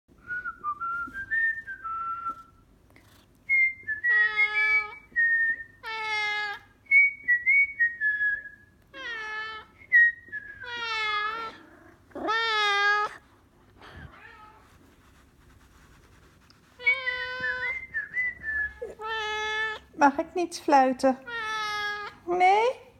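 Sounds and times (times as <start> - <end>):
cat meowing: 12.2 - 13.2, 16.8 - 17.9, 18.8 - 19.9, 21.3 - 22.2
person whistling: 16.8 - 19.0.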